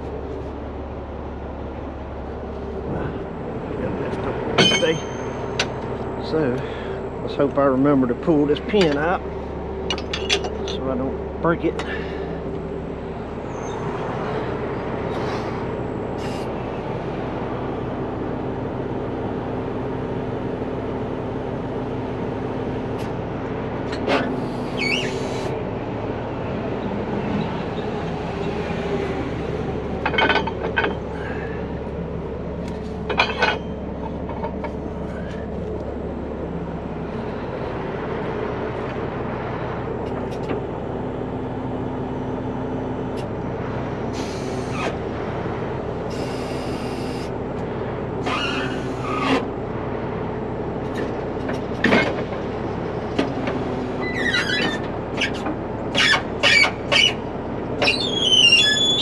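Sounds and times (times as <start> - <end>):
steady whine: 0.0 - 52.0
diesel engine running: 0.0 - 59.0
sharp metallic clanks: 4.5 - 5.8, 9.8 - 11.0, 33.0 - 34.8.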